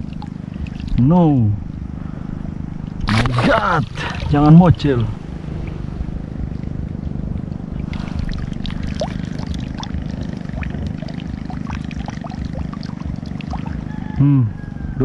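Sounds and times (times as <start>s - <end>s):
water trickling and lapping: 0.0s - 1.1s, 2.5s - 6.2s, 7.2s - 13.9s
wind rumbling on microphone: 0.0s - 15.0s.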